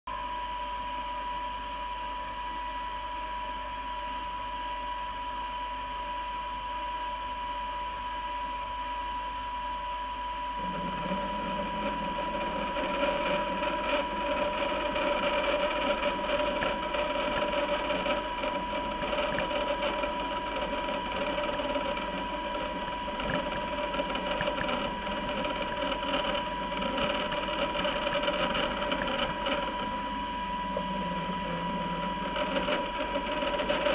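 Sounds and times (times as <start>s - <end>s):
band saw whine: 10.2s - 33.9s.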